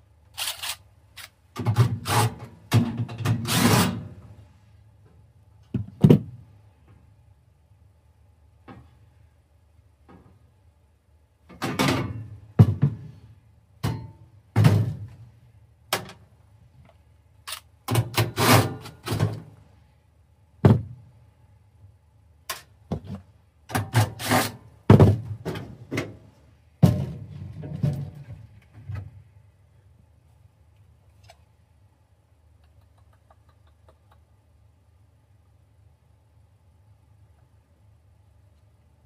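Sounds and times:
tools knocking and clattering: 0:11.5 - 0:13.1, 0:13.8 - 0:15.0.

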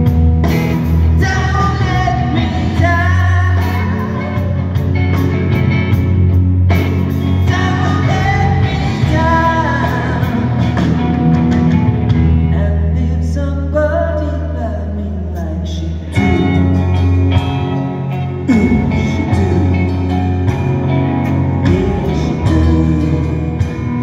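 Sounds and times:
drums: 0:00.0 - 0:24.0
guitars: 0:00.0 - 0:24.0
person singing: 0:01.0 - 0:04.9, 0:07.3 - 0:10.9, 0:18.1 - 0:20.6, 0:21.5 - 0:24.0.

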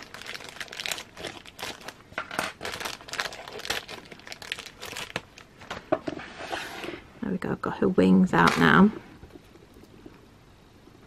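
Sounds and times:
plastic packaging crinkling: 0:00.0 - 0:05.9.

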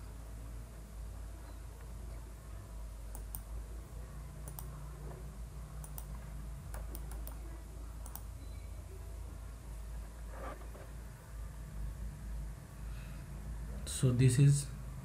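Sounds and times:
steady low hum: 0:00.0 - 0:15.0
computer mouse clicking: 0:03.1 - 0:03.5, 0:04.4 - 0:04.8, 0:05.8 - 0:08.3.

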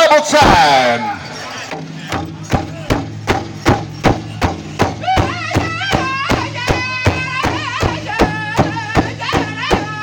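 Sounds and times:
large drum beating: 0:01.7 - 0:10.0
high-pitched singer: 0:05.0 - 0:10.0.

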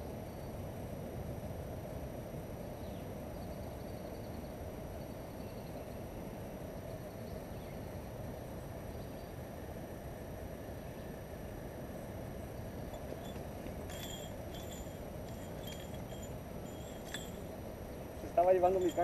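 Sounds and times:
faint bird chirps: 0:12.6 - 0:19.0
wind buffeting microphone: 0:12.8 - 0:19.0.

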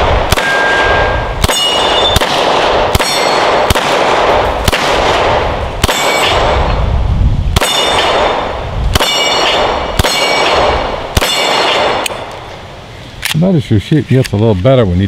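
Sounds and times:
pistol shots: 0:00.0 - 0:06.7, 0:07.6 - 0:12.4
steel targets clanging: 0:09.0 - 0:11.9.

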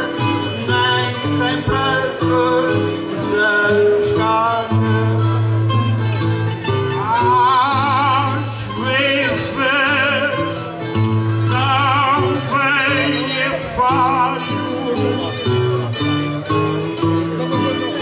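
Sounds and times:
man singing with vibrato: 0:00.0 - 0:18.0
plucked guitars playing: 0:00.0 - 0:18.0.

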